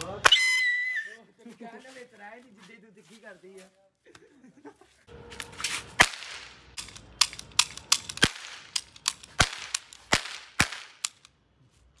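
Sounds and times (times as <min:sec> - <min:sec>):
cap gun cracks: 0:06.0 - 0:11.4.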